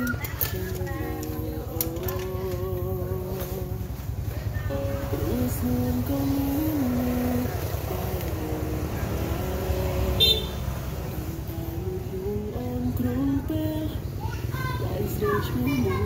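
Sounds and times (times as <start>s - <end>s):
simple stepping melody: 0.0s - 10.1s.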